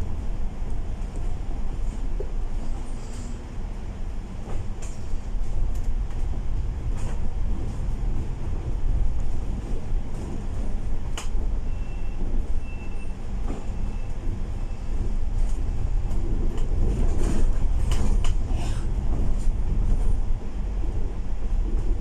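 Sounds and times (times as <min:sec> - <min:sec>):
bus engine and road rumble: 0:00.0 - 0:22.0
body rattles and clicks: 0:15.4 - 0:20.3.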